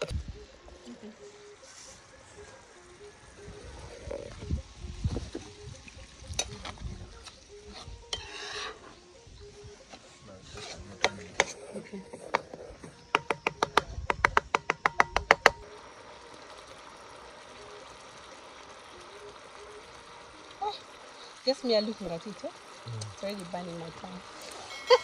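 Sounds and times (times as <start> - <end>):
metal spoon scraping a pan: 7.6 - 9.0, 10.4 - 12.7.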